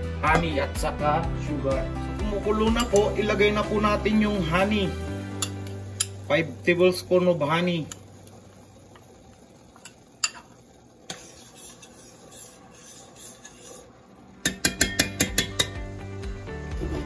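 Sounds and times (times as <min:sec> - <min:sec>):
spoon clinking on pot: 0:02.7 - 0:03.2, 0:05.4 - 0:06.2, 0:09.8 - 0:11.3, 0:14.4 - 0:15.8
metal spoon scraping bowl: 0:11.1 - 0:15.7.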